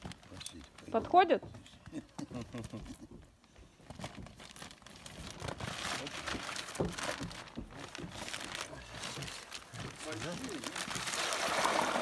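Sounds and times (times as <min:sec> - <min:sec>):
plastic bag crinkling: 0:03.9 - 0:12.0.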